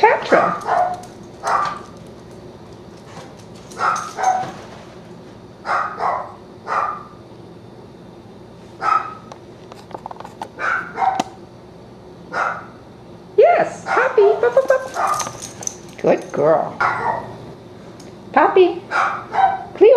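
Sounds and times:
dog barking: 0.4s - 2.0s, 3.8s - 4.5s, 5.6s - 7.2s, 8.8s - 9.3s, 10.6s - 11.3s, 12.3s - 12.8s, 13.9s - 15.5s, 16.8s - 17.4s, 18.9s - 19.8s.

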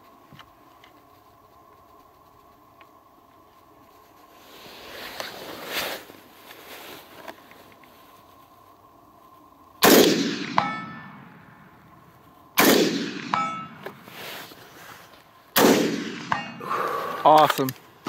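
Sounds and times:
rifle shots with echo: 9.8s - 11.4s, 12.6s - 13.8s, 15.6s - 16.6s
distant steel target ringing: 9.9s - 11.6s, 12.6s - 13.8s, 15.8s - 16.6s.

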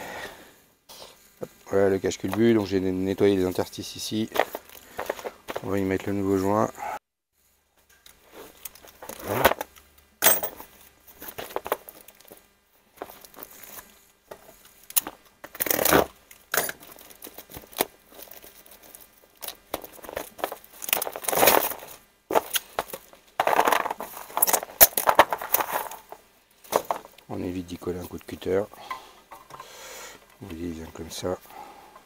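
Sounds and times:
plastic bag crinkling and tearing: 16.8s - 26.0s.

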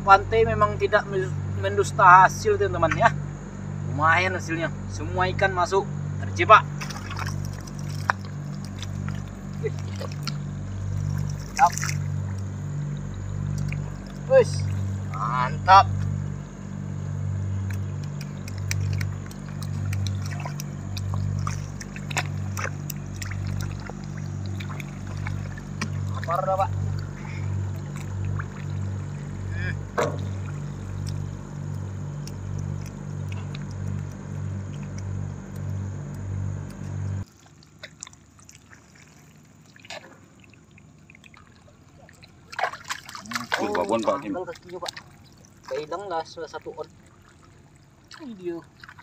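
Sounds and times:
pulsing low hum: 0.0s - 37.3s
feet wading through water: 0.0s - 49.0s
net splashing and dripping: 6.4s - 49.0s.

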